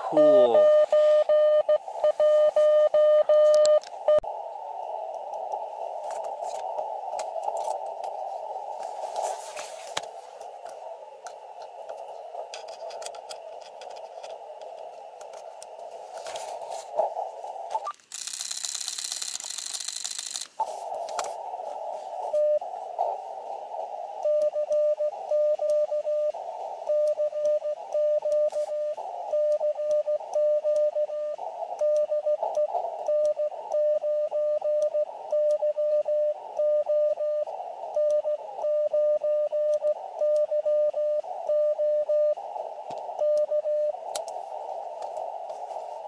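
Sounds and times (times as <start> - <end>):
morse code tone: 0.0 - 4.2
receiver hiss: 0.0 - 46.0.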